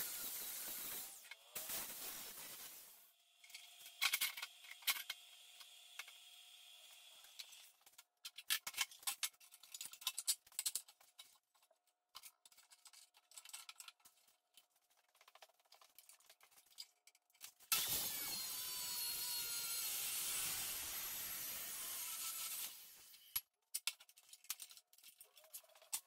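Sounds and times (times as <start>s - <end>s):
welding arc sizzling: 0.0s - 3.1s, 17.7s - 18.8s.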